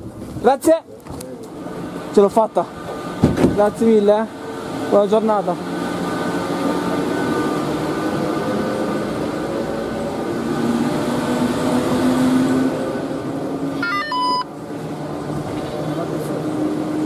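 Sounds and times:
gondola machinery drone: 4.3 - 17.0
electronic beeps: 13.8 - 14.5.

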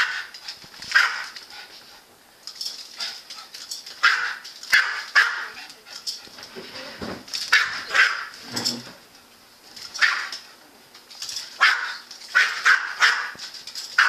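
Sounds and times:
small dog barking: 4.0 - 5.6, 7.5 - 8.3, 10.0 - 10.3, 11.6 - 13.4.

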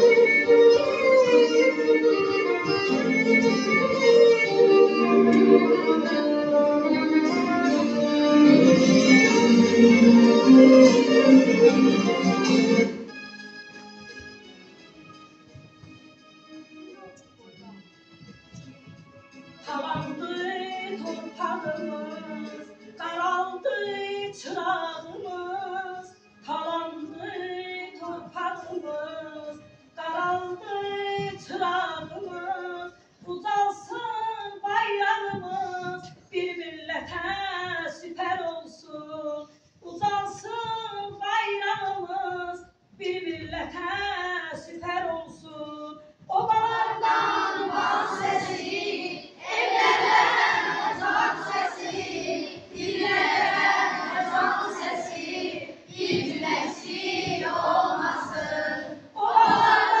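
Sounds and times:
children's choir singing: 19.6 - 26.1, 46.4 - 60.0
woman singing: 19.7 - 47.2, 58.2 - 59.9.

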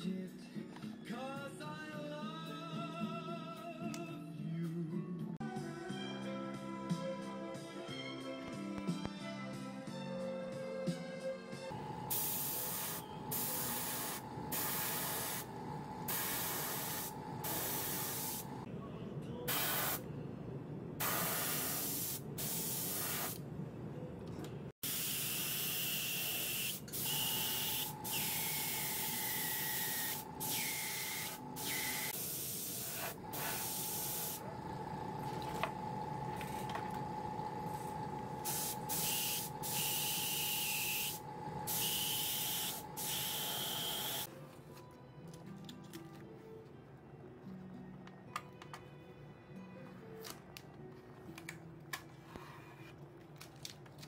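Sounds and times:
airbrush spraying bursts: 12.1 - 15.5, 16.1 - 18.6, 19.5 - 20.0, 21.0 - 23.4, 24.8 - 34.4, 38.4 - 44.3.

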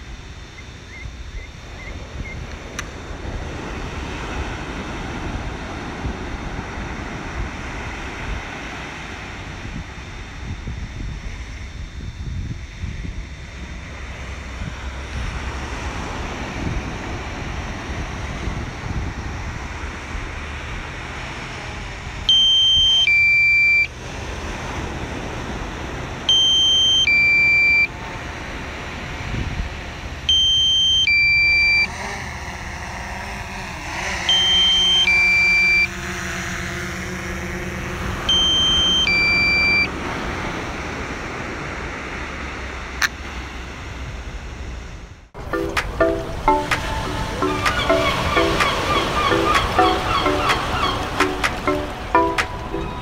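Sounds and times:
electronic warning beeps: 0.0 - 2.6, 22.3 - 23.9, 26.3 - 27.9, 30.3 - 31.9, 34.3 - 36.0, 38.3 - 39.9, 45.4 - 53.0
wind noise: 0.0 - 22.3, 27.1 - 30.4.

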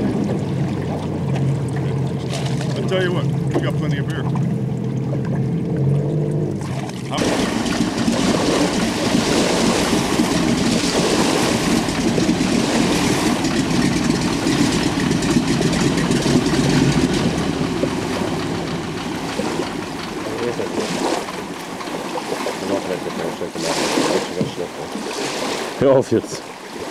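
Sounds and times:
radial engine running at low power: 0.0 - 25.0.

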